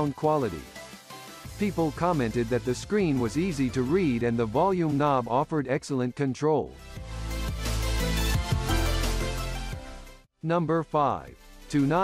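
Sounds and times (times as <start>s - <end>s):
background music with bass: 0.0s - 5.6s, 6.7s - 10.3s.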